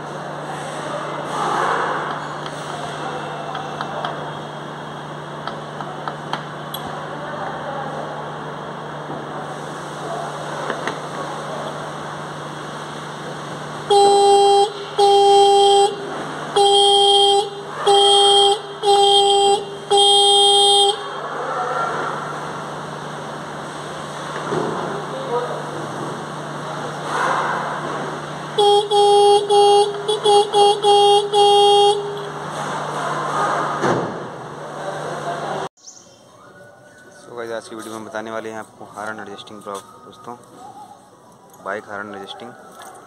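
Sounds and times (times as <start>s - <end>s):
electric car horn blasts: 13.7s - 21.4s, 28.4s - 32.6s.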